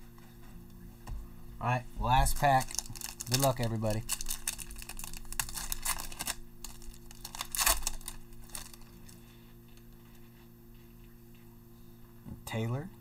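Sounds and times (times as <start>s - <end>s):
wrapper crackling and tearing: 2.3s - 9.2s.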